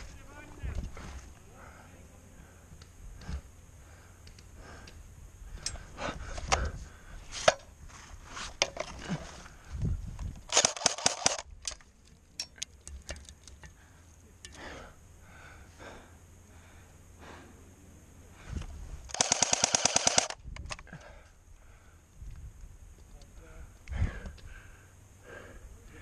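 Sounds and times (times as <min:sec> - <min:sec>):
airsoft guns firing: 0:10.5 - 0:11.5, 0:19.1 - 0:20.4.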